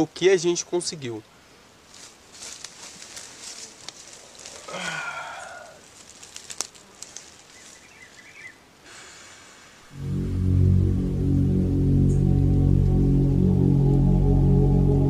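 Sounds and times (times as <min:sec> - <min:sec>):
dry leaves crackling: 0:01.8 - 0:08.6
background music low notes: 0:09.9 - 0:15.0.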